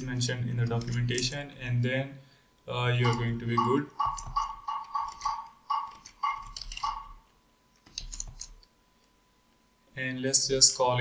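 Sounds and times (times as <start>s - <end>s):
keyboard keys clicking: 3.0s - 7.2s.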